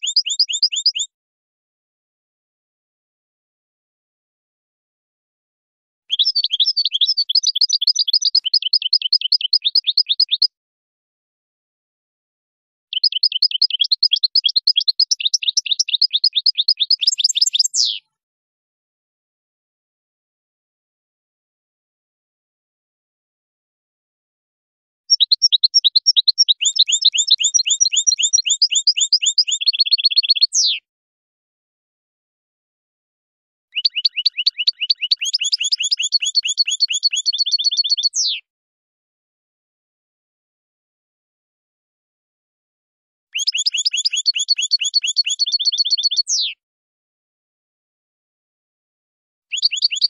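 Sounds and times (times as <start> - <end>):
goldfinch singing: 0.0 - 1.1, 6.1 - 10.5, 12.9 - 18.1, 25.1 - 30.8, 33.8 - 38.4, 43.4 - 46.6, 49.5 - 50.0.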